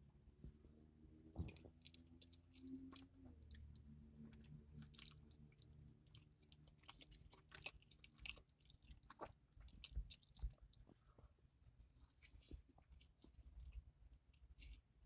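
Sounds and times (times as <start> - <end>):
low thuds of biting: 0.5 - 3.6
chewing with wet mouth clicks: 1.1 - 15.0.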